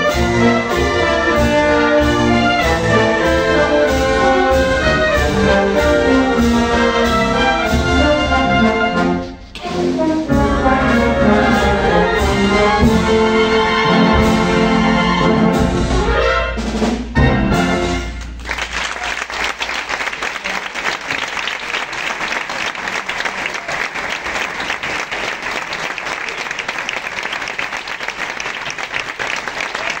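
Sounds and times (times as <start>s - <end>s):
wind band playing chords: 0.0s - 19.5s
audience applause: 18.2s - 30.0s.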